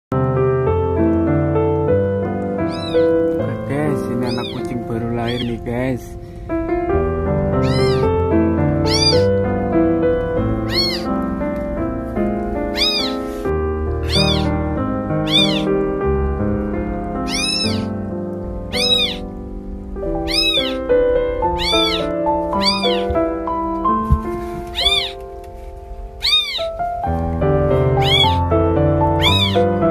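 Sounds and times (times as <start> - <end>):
background music: 0.2 - 29.9
kittens mewing: 2.6 - 5.8, 7.5 - 9.4, 10.4 - 11.2, 12.6 - 15.8, 17.2 - 18.0, 18.7 - 19.4, 20.1 - 23.3, 24.6 - 25.3, 26.2 - 27.0, 27.8 - 29.9.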